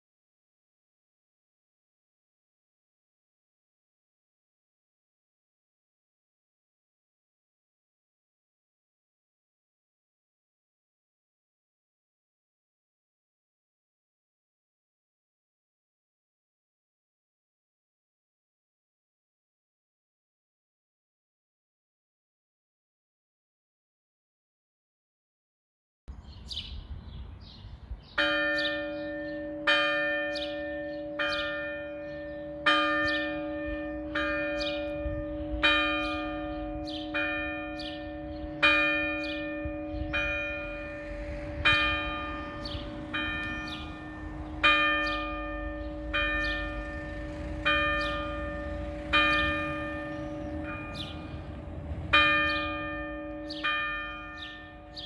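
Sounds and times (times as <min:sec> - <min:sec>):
church bell struck by hammer: 0:28.2 - 0:55.0.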